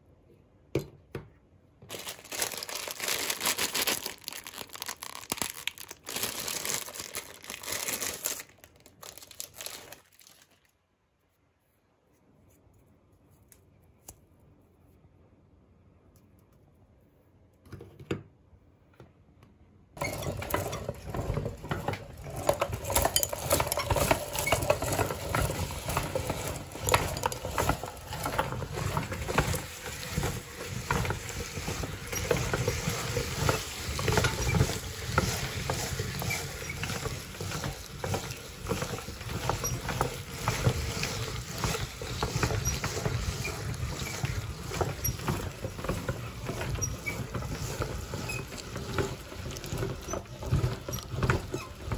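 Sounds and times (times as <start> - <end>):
meat grinder crunching ice: 1.9 - 10.6, 20.0 - 51.9.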